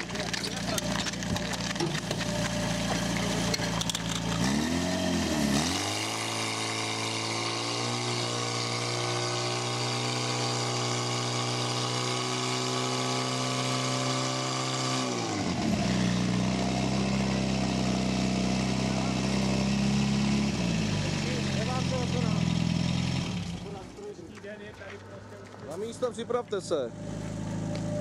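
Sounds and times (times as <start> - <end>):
pump engine running: 0.0 - 24.2.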